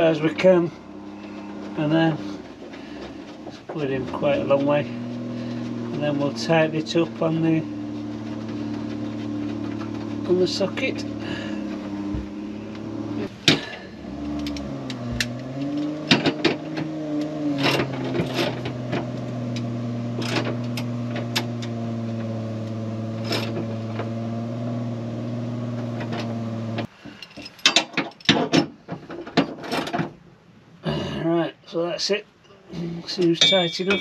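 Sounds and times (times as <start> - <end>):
engine idling hum: 0.0 - 26.9.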